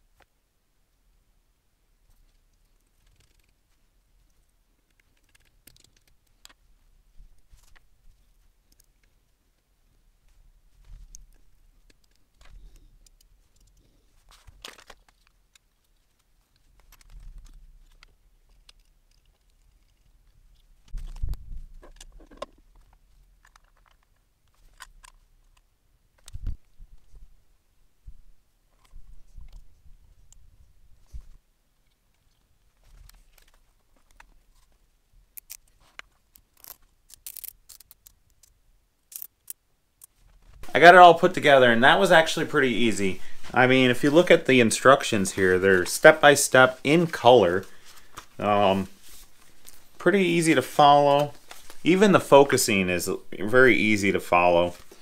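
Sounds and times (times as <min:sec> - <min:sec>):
small clicks of metal parts: 0:02.2 - 0:03.6, 0:04.2 - 0:06.6, 0:08.7 - 0:09.2, 0:11.0 - 0:14.0, 0:14.6 - 0:26.5, 0:35.4 - 0:40.2
short rustle: 0:40.2 - 0:52.8.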